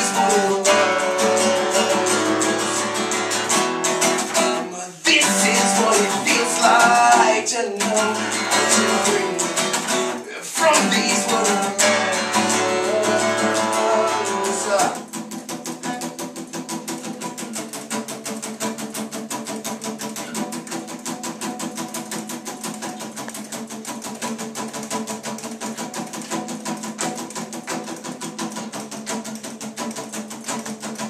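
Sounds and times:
man singing: 0:00.0 - 0:03.3, 0:04.2 - 0:15.1
fingerpicked acoustic guitar: 0:00.0 - 0:31.0.

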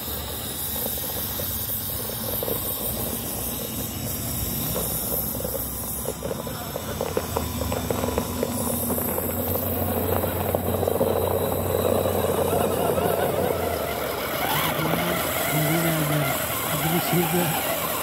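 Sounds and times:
electric motor and gearbox hum: 0:00.0 - 0:18.0
soil crackling under tyres: 0:00.0 - 0:18.0
voices: 0:09.0 - 0:18.0.

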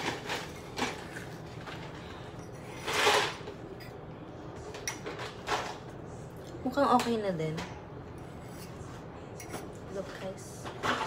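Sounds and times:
fork scraping ceramic mug: 0:08.2 - 0:09.7.

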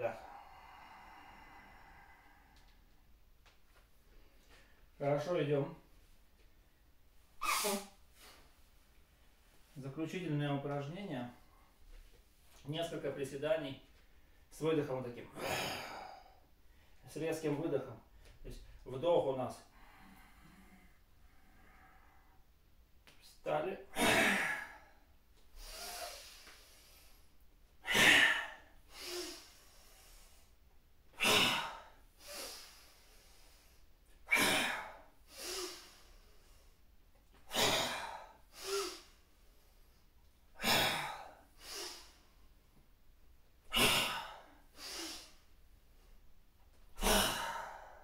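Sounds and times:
man's soft breath: 0:00.1 - 0:03.1, 0:19.7 - 0:22.6
man's forceful exhalations: 0:47.0 - 0:48.0.

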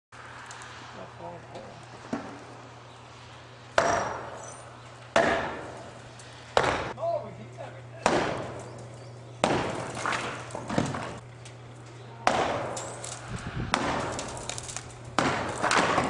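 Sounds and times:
sledgehammer blows on wood: 0:05.2 - 0:05.9, 0:06.6 - 0:07.0, 0:08.0 - 0:08.6, 0:09.4 - 0:11.2, 0:12.2 - 0:16.0
wood breaking crackle: 0:08.4 - 0:16.0.

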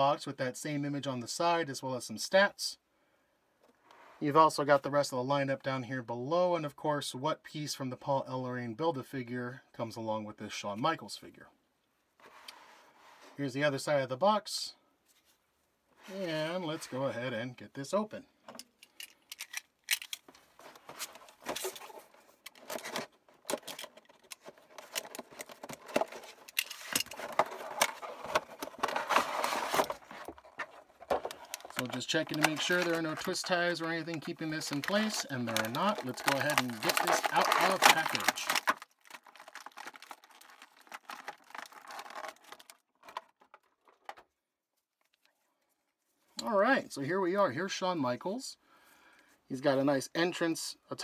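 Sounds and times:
toy packaging being opened by hand: 0:18.6 - 0:44.4.

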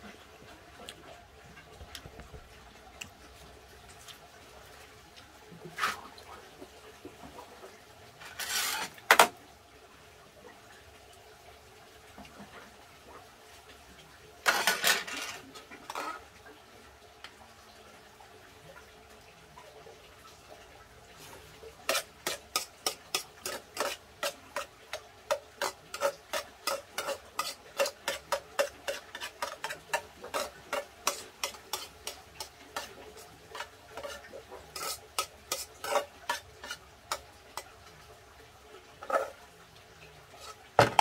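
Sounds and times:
spoon scraping a pot: 0:08.2 - 0:09.3, 0:14.4 - 0:16.2, 0:21.8 - 0:37.7, 0:39.0 - 0:39.4, 0:40.4 - 0:41.0.

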